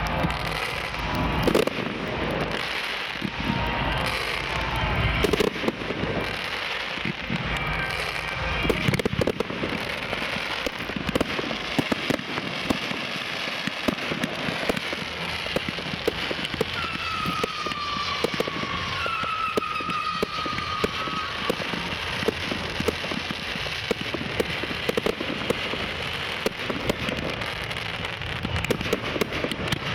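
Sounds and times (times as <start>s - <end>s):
fireworks crackling and popping: 0.0s - 29.9s.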